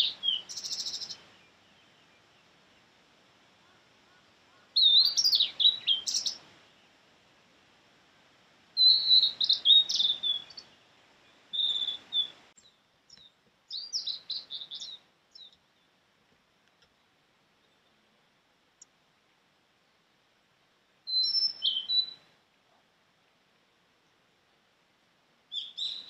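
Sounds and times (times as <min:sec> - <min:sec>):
bird singing whistled notes: 0:00.0 - 0:02.4, 0:04.5 - 0:06.9, 0:08.8 - 0:15.9, 0:21.0 - 0:22.3, 0:25.5 - 0:26.0.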